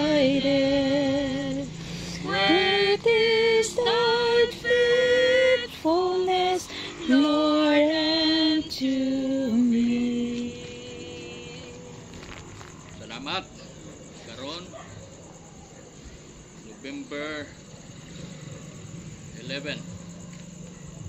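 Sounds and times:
woman singing: 0.0s - 12.2s.

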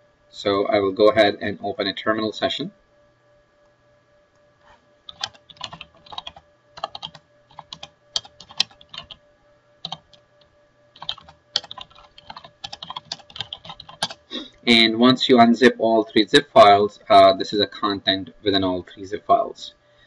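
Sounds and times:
typing on computer keyboard: 5.1s - 9.2s, 9.8s - 10.2s, 11.0s - 14.2s.

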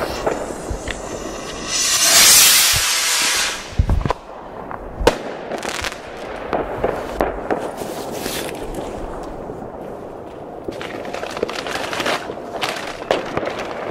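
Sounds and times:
firework rocket whoosh: 0.0s - 5.2s
firework bangs: 0.0s - 7.8s.

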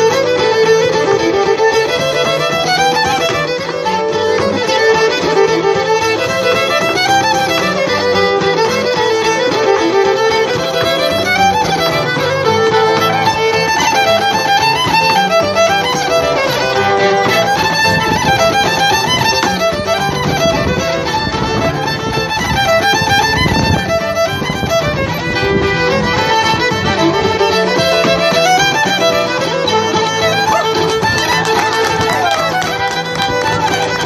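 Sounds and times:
fiddle playing a quick tune: 0.0s - 34.0s
piano accompaniment: 0.0s - 34.0s
hard shoes striking wooden deck: 8.2s - 34.0s.

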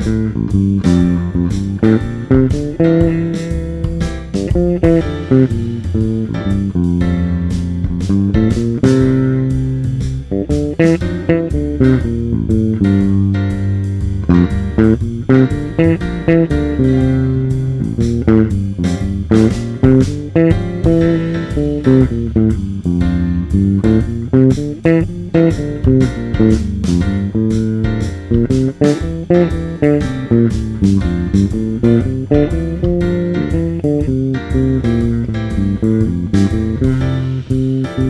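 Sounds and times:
electric bass jazz solo: 0.0s - 38.0s.

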